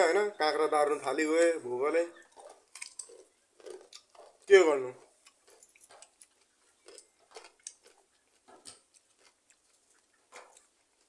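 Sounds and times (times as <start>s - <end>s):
person chewing cucumber crunches: 2.3s - 4.5s, 5.1s - 11.0s.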